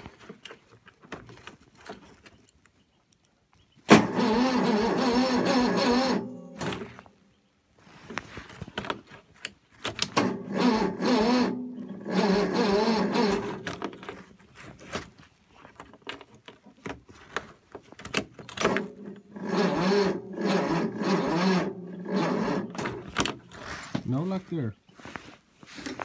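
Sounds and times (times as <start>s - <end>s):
engine cranking without firing: 3.9s - 7.1s, 9.8s - 14.4s, 18.0s - 23.7s.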